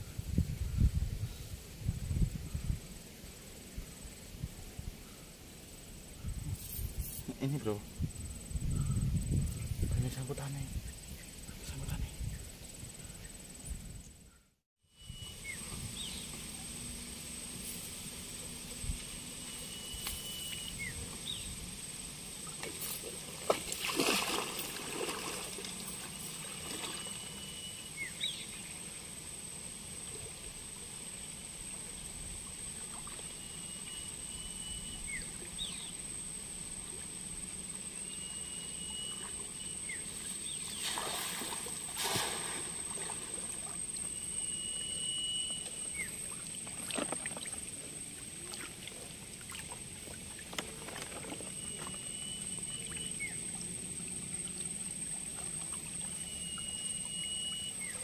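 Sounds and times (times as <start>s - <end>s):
steady high-pitched whine: 0.0s - 58.0s
water sloshing and splashing: 22.4s - 27.5s, 40.2s - 44.2s, 45.6s - 57.7s.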